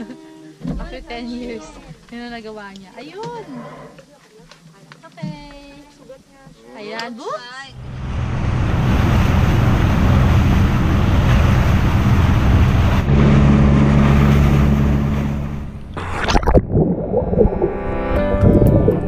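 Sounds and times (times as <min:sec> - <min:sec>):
boat engine running: 0:07.7 - 0:19.0
water rushing along hull: 0:07.7 - 0:19.0.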